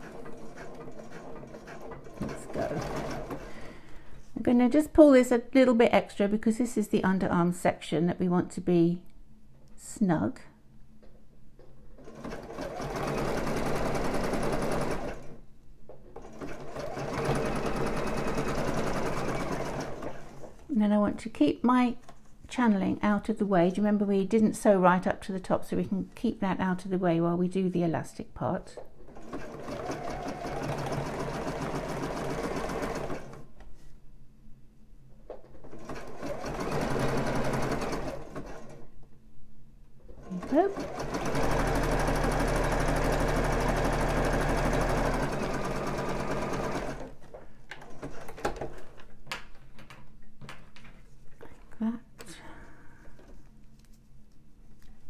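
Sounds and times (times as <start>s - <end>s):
sewing machine stitching: 0.0s - 3.6s, 12.0s - 15.4s, 16.1s - 20.6s, 29.1s - 33.4s, 35.5s - 38.8s, 40.1s - 47.2s.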